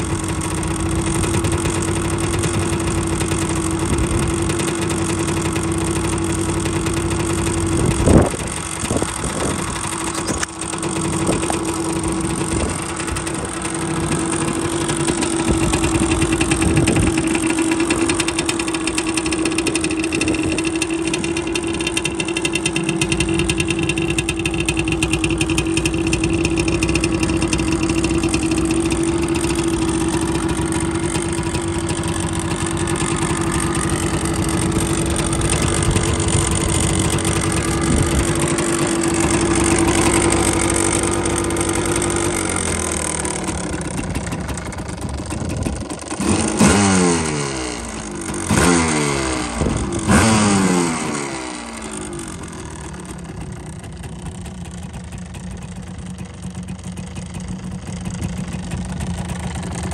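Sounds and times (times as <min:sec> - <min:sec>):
two-stroke engine idling: 0:00.0 - 0:59.9
engine revving blips: 0:07.7 - 0:14.4, 0:46.2 - 0:52.0.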